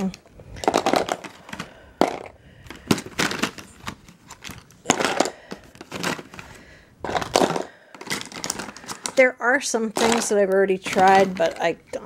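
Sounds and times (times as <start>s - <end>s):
plastic tubes clicking and clattering: 0.0s - 12.0s.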